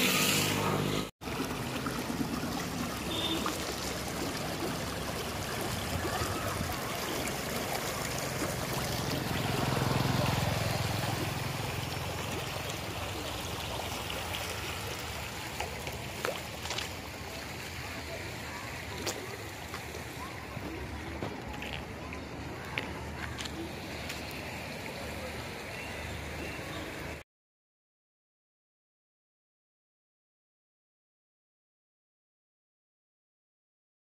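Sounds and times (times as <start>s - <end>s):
floodwater rushing: 1.2s - 27.2s.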